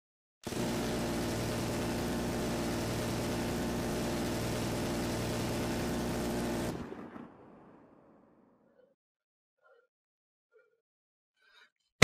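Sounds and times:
rotary machine gun firing: 0:00.4 - 0:08.4.

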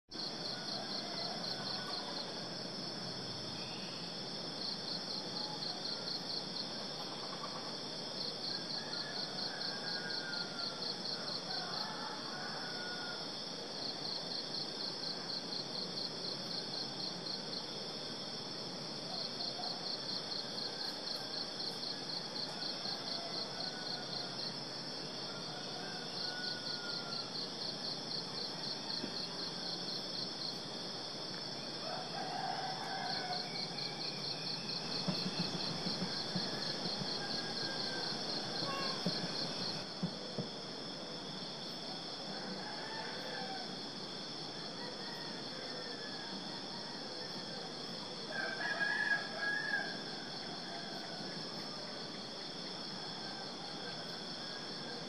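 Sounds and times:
insect drone: 0:00.1 - 0:55.0
insect pulsed trill: 0:33.3 - 0:39.8
faint bird calls: 0:38.6 - 0:39.4.

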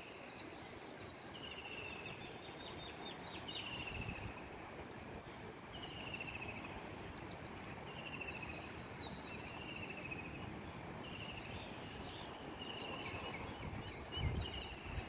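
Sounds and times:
moving floodwater: 0:00.0 - 0:15.0
wind: 0:00.0 - 0:15.0
birds trilling chirps: 0:07.9 - 0:15.0.

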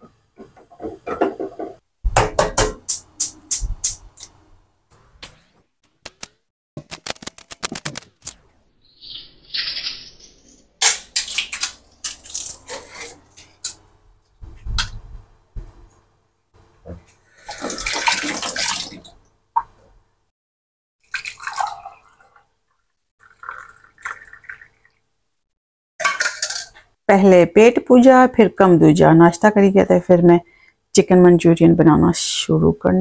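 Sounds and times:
eggshells cracking: 0:09.0 - 0:13.9
water splashing into sink: 0:17.4 - 0:19.8, 0:21.0 - 0:22.5, 0:23.2 - 0:25.0
tea pouring into mug: 0:23.2 - 0:25.0.

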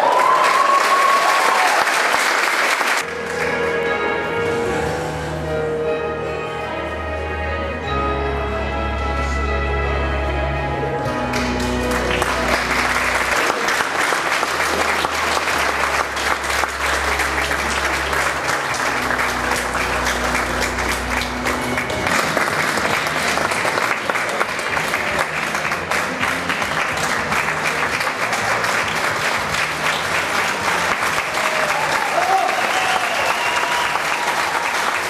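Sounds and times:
audience applauding: 0:00.0 - 0:03.7, 0:11.2 - 0:35.0
backing music: 0:03.0 - 0:35.0.

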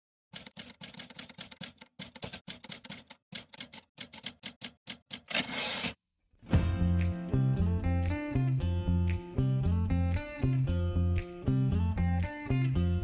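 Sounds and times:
typewriter keys clacking: 0:00.4 - 0:05.9
music: 0:06.4 - 0:13.0.

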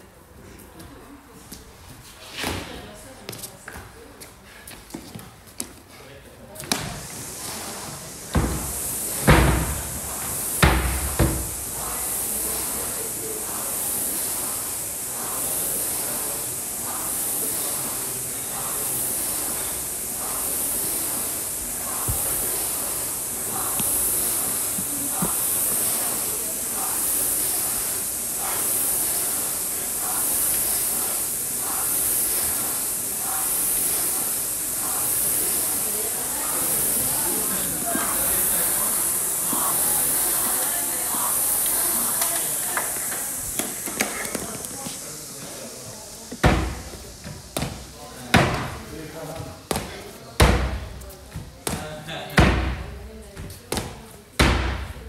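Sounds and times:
rowing machine fan whooshing: 0:06.9 - 0:50.2.

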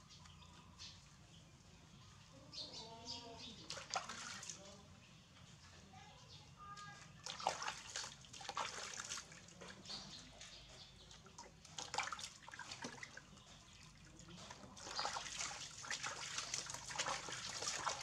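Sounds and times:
water splashing in plastic basin: 0:03.6 - 0:04.8, 0:07.1 - 0:18.0.

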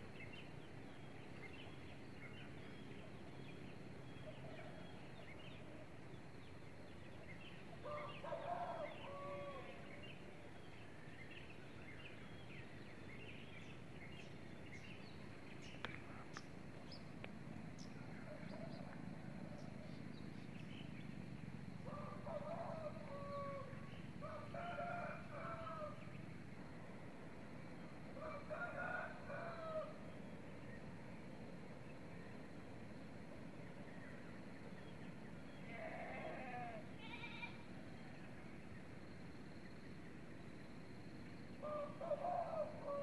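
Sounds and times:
steady low hum: 0:00.0 - 0:43.0
rooster crowing: 0:07.8 - 0:09.8, 0:21.9 - 0:26.0, 0:28.2 - 0:30.0.

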